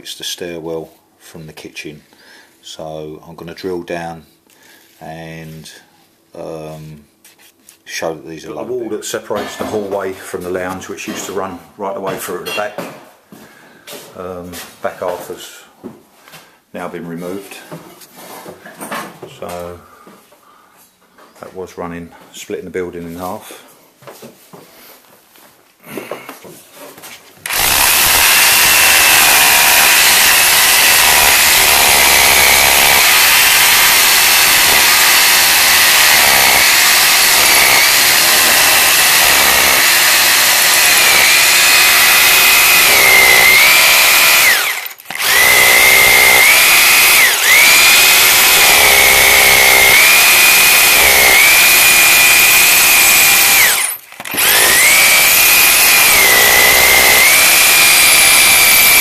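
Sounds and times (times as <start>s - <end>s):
electric drill boring into concrete: 27.5s - 59.0s.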